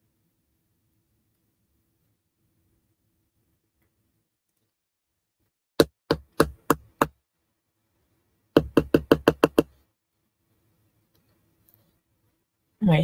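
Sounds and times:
sharp knocking: 5.8 - 7.1, 8.6 - 9.7.

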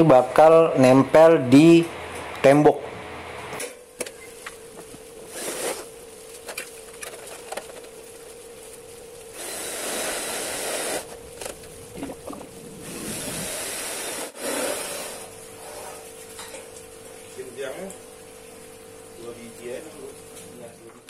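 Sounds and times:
power drill driving screws: 5.3 - 5.9, 9.4 - 11.1, 12.9 - 15.3.

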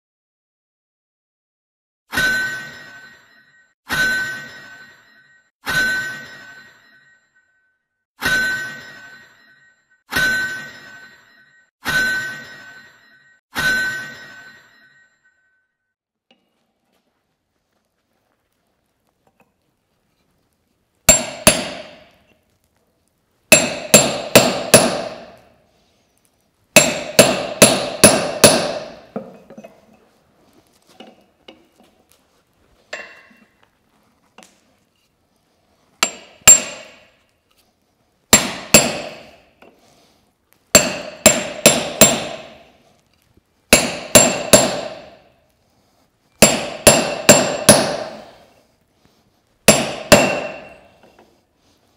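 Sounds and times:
hammer striking steel on anvil: 2.1 - 7.2, 8.2 - 15.0, 21.1 - 22.3, 23.5 - 25.6, 26.8 - 30.0, 32.9 - 33.5, 36.0 - 37.3, 38.3 - 39.9, 40.7 - 42.8, 43.7 - 45.4, 46.4 - 48.6, 49.7 - 51.3.

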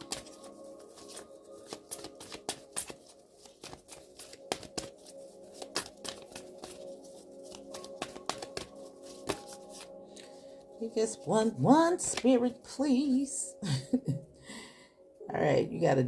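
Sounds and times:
cards being shuffled: 0.0 - 10.4, 12.0 - 12.3.

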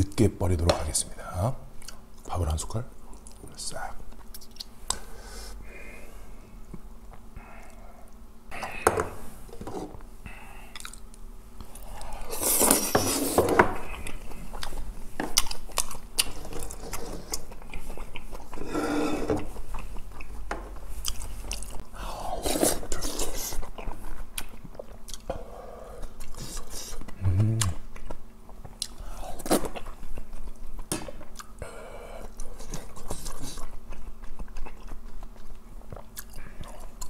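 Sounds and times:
chewing and wet smacking: 4.1 - 5.0, 10.7 - 12.2, 13.8 - 18.6, 19.4 - 21.8, 23.0 - 25.4, 26.0 - 31.6, 32.2 - 37.0.

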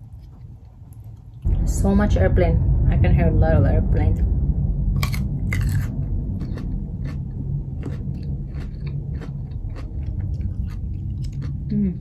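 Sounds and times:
airplanes droning overhead: 0.0 - 12.0
crunchy chewing: 5.0 - 11.8.

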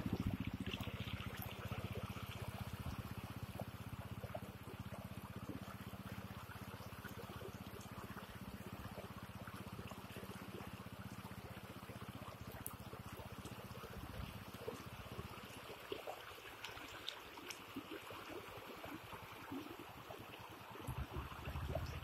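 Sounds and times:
low pulsing rumble: 0.0 - 5.8, 19.2 - 22.0.

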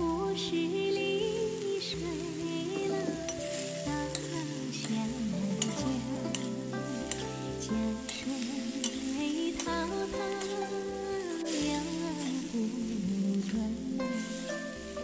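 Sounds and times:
background music: 0.0 - 15.0
steady sizzle: 0.0 - 15.0
metal spatula scraping a wok: 2.8 - 15.0.

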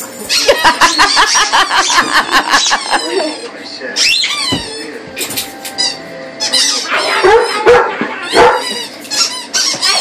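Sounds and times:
squeaky rubber toy squeaking: 4.0 - 4.8, 5.8 - 7.6, 8.3 - 10.0.

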